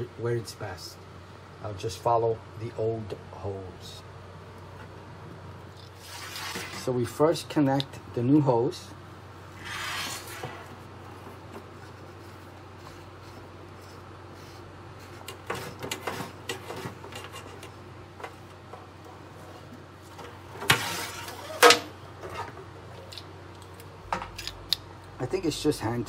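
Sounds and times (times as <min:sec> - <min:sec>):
scraping rustles: 0:05.8 - 0:06.9.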